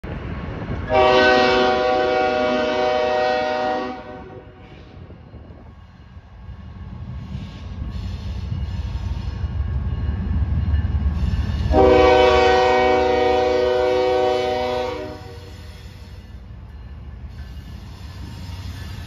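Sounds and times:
freight train rumbling: 0.0s - 19.0s
locomotive air horn: 0.9s - 5.0s, 11.7s - 16.2s.

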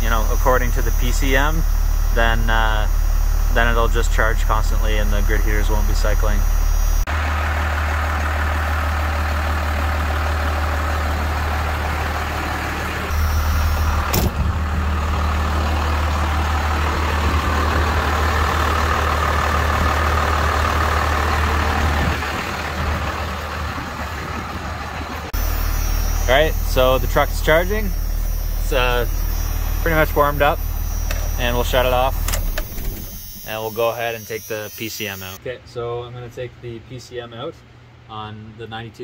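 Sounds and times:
diesel engine idling: 0.0s - 34.3s
sharp click: 32.1s - 33.5s.

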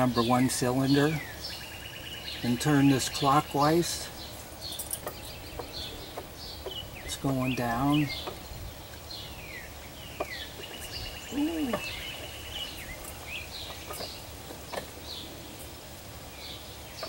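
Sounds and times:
bird trill: 0.0s - 15.7s
songbirds chirping: 0.0s - 17.0s
low vocal sound: 11.3s - 12.0s.

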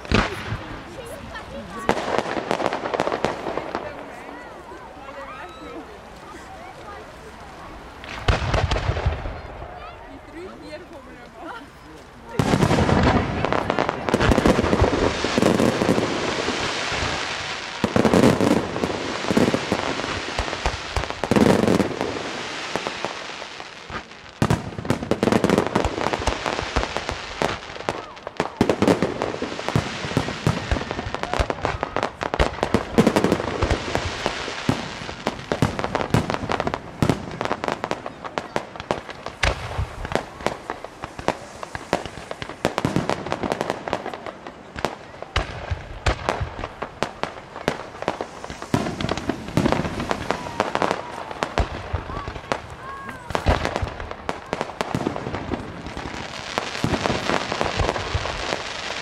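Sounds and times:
fireworks crackling and popping: 0.0s - 59.0s
firework shells bursting with bangs: 12.3s - 59.0s.

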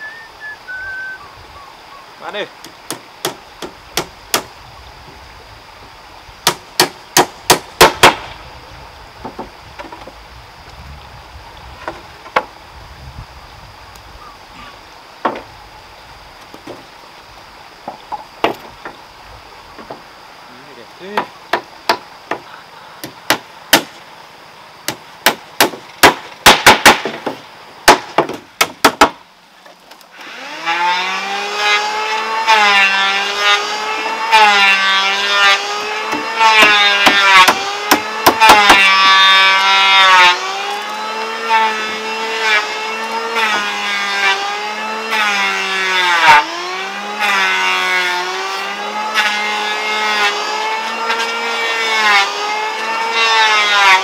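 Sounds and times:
hammer nailing wooden boards: 2.9s - 4.5s, 6.4s - 8.2s, 21.2s - 23.9s, 24.9s - 29.2s, 36.1s - 39.2s
engine running and revving: 30.4s - 36.6s.

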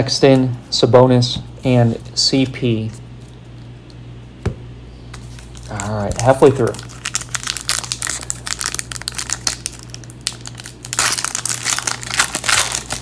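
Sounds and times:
plastic wrapper crackling: 5.3s - 13.0s.

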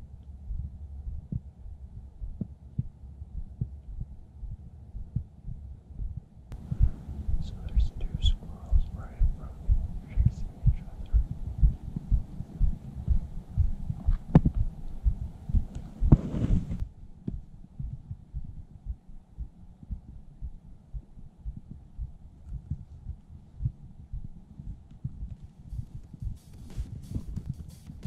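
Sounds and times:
footstep thuds on microphone: 8.7s - 18.0s, 25.0s - 28.0s
short rustle: 15.8s - 16.8s.

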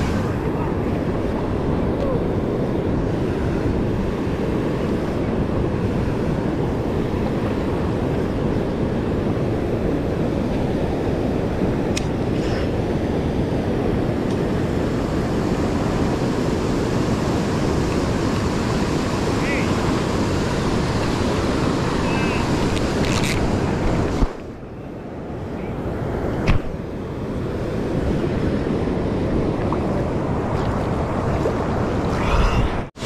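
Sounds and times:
river water rushing through dam: 14.5s - 24.2s.

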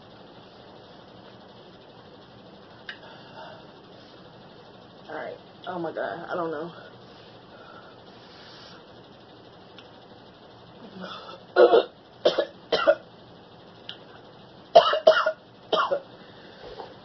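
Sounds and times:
woman coughing: 11.0s - 13.0s, 14.8s - 16.1s.

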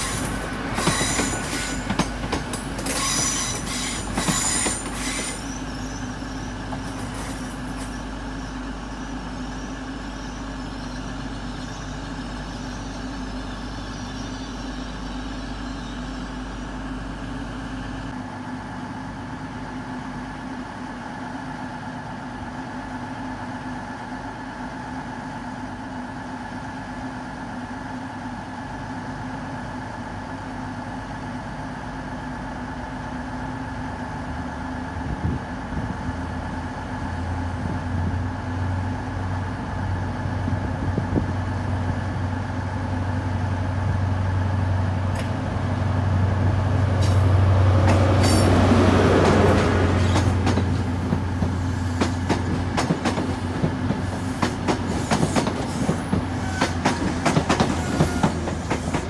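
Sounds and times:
high warbling brake squeal: 0.0s - 1.9s, 2.9s - 6.6s
diesel engines idling: 5.4s - 59.0s.

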